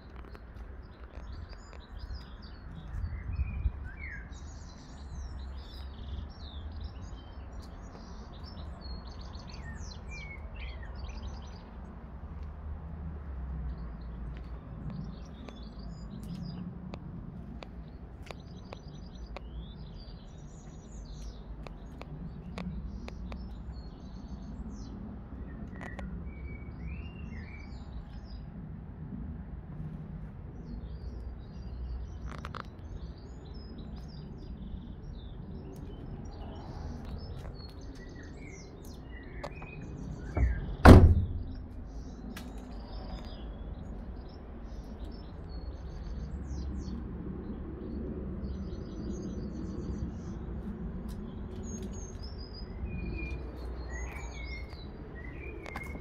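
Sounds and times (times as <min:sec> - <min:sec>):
small birds chirping: 0:00.0 - 0:12.2, 0:13.7 - 0:28.5, 0:30.4 - 0:56.0
van door slamming: 0:40.3 - 0:41.8.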